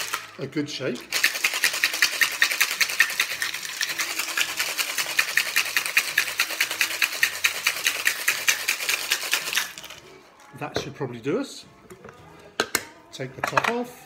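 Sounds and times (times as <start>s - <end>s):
metal cocktail shaker rattling: 0.0s - 10.0s.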